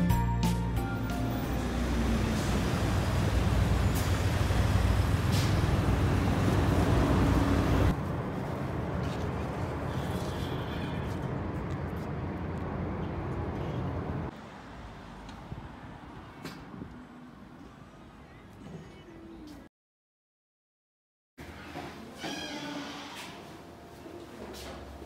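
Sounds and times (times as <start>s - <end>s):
road traffic rumble: 0.1s - 19.7s
distant traffic hum: 1.3s - 19.6s.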